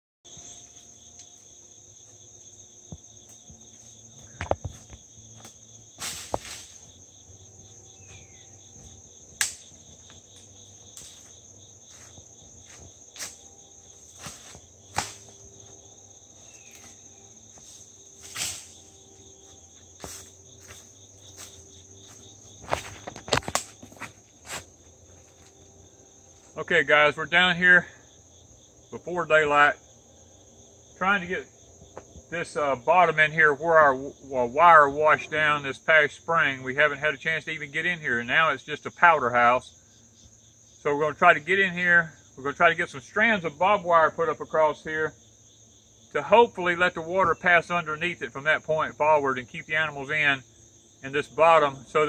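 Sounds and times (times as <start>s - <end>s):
crickets chirping: 0.2s - 52.0s
footsteps in dry leaves: 4.7s - 15.7s, 16.3s - 25.6s.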